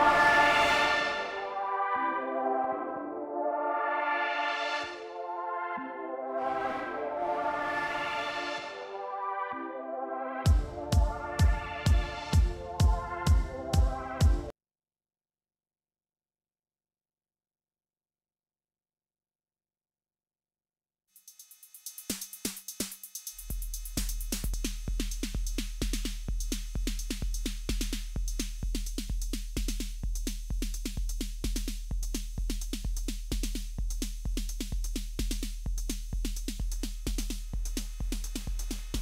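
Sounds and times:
kick drum beat: 10.5 - 14.5, 22.1 - 39.0
hi-hat ticks: 21.2 - 39.0.

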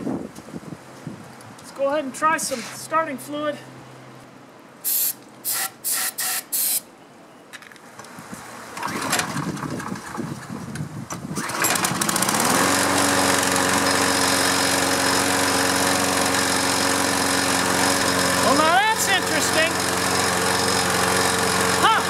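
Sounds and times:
aerosol spray hissing: 4.8 - 6.8
lawn mower engine cranking and running: 7.6 - 22.0.

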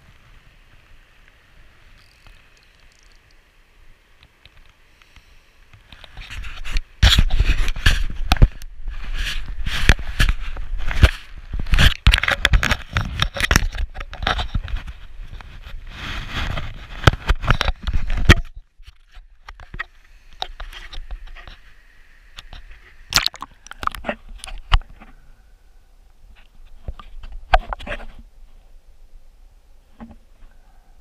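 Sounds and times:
knocks and scrapes: 5.9 - 21.7, 26.4 - 28.2
splashing water: 23.1 - 24.6.

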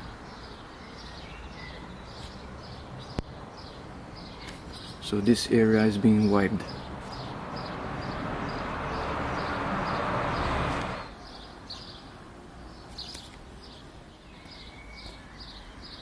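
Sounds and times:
bird chirping: 0.0 - 16.0.

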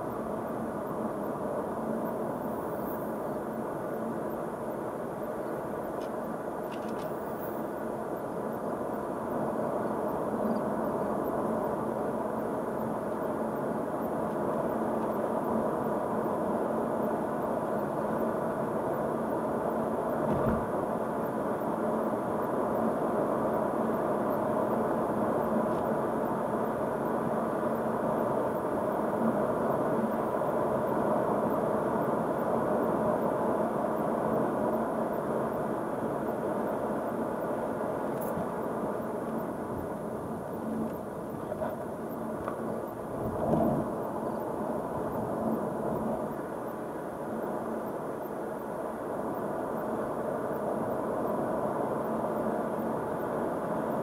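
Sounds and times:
low thump: 20.3 - 20.7.

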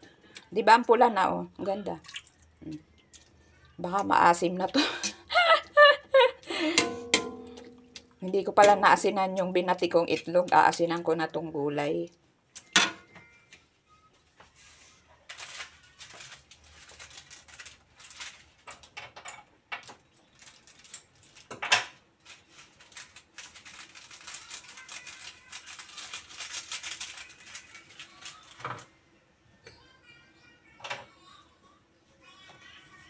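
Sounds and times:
dense rattling crackle: 22.2 - 28.6.

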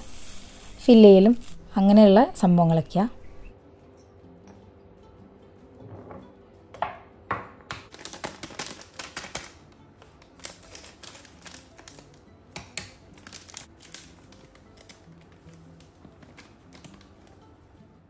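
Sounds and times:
plastic packet crinkling: 7.9 - 12.2, 13.1 - 17.4.

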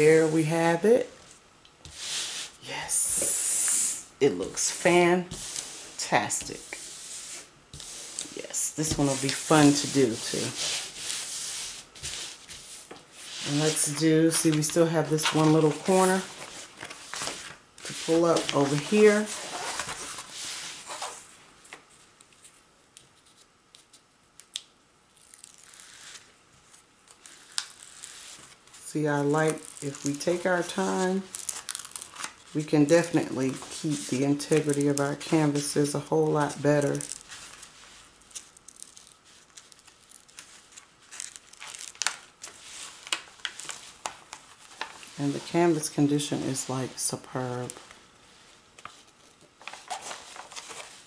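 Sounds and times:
plastic sheet peeling and crackling: 29.4 - 32.6, 36.8 - 45.5
plastic sheet rustling and crackling: 48.9 - 51.0.

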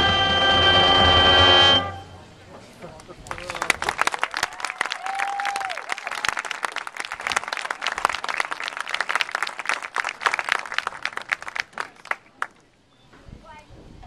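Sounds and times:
crowd applauding: 2.9 - 12.6.

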